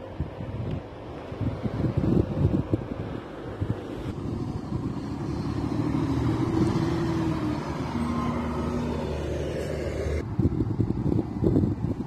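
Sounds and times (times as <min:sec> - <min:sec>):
wind rumbling on microphone: 0:00.0 - 0:12.0
bus engine driving past: 0:01.6 - 0:10.8.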